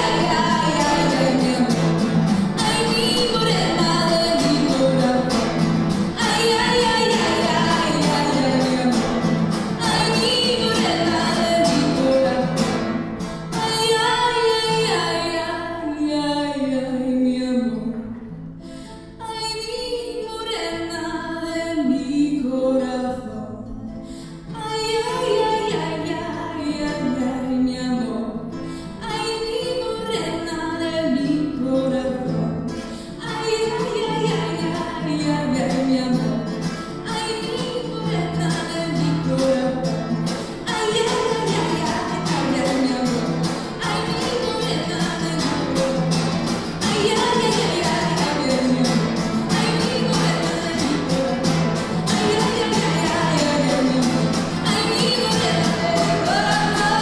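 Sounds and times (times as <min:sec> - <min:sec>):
woman singing into a microphone: 0:00.0 - 0:12.7, 0:13.5 - 0:18.1, 0:19.1 - 0:57.0
acoustic guitars strumming: 0:00.0 - 0:57.0.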